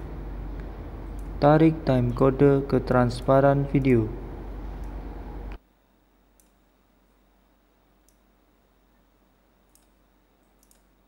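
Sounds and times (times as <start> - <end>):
background noise: 0.0 - 11.0
faint computer mouse clicks: 6.4 - 6.6, 9.7 - 10.9.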